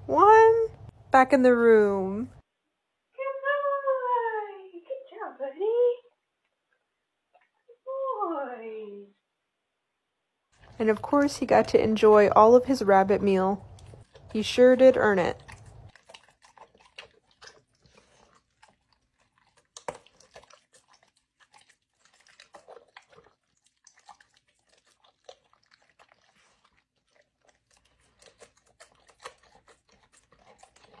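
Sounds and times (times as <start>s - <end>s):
dog chewing clicks: 15.3s - 31.0s.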